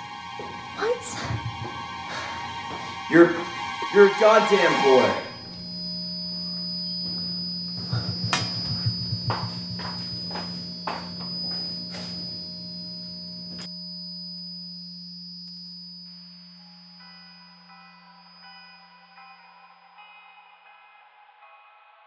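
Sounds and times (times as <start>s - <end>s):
low drone tone: 4.1s - 19.1s.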